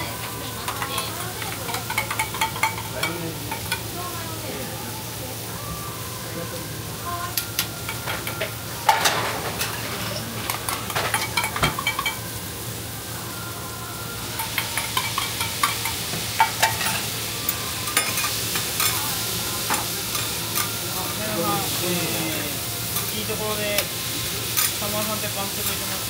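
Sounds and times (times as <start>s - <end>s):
food sizzling on a griddle: 0.0s - 26.0s
spatulas tapping a hot plate: 0.6s - 3.8s, 7.3s - 12.2s, 14.4s - 19.0s.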